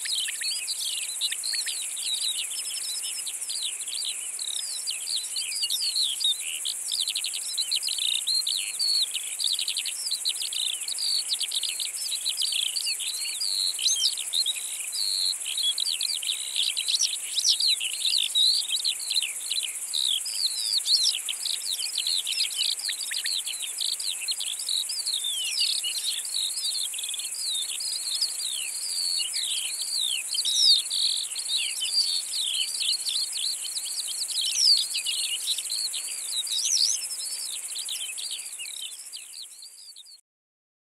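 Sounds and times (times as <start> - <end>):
insects stridulating: 0.0 - 39.2.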